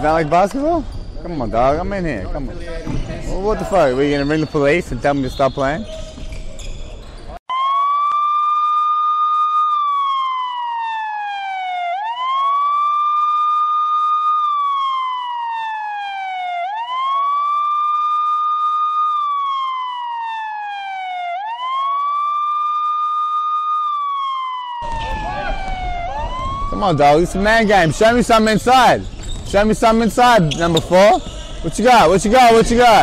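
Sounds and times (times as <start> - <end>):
police siren wailing: 7.5 - 29.0, 29.9 - 33.0.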